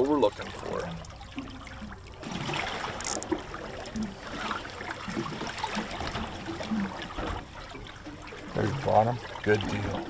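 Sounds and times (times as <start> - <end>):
water lapping against boat: 0.0 - 10.0.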